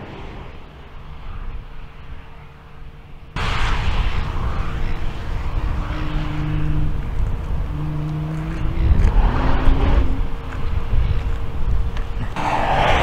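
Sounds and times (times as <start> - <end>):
sports car engine accelerating: 5.8 - 10.6.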